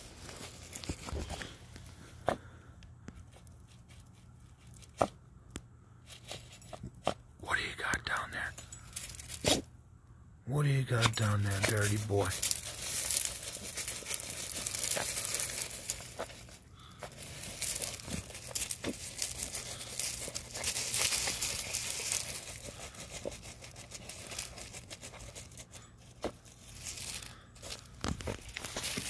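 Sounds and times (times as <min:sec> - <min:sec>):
puppy digging in gravel: 0:00.0 - 0:02.5, 0:03.2 - 0:05.2, 0:06.0 - 0:09.7, 0:10.6 - 0:29.0.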